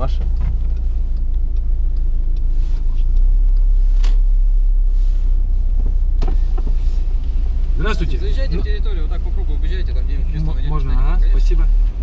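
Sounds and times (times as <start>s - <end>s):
engine and road rumble inside van: 0.0s - 12.0s.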